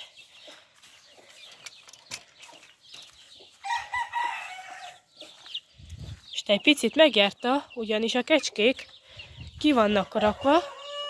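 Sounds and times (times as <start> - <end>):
chickens clucking: 0.0 - 11.0
rooster crowing: 3.6 - 5.0, 10.4 - 11.0.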